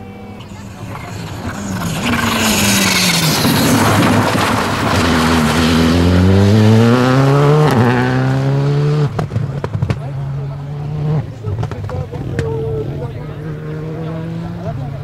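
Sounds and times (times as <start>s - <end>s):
gravel and tyre noise: 0.0s - 15.0s
rally car engine: 0.0s - 15.0s.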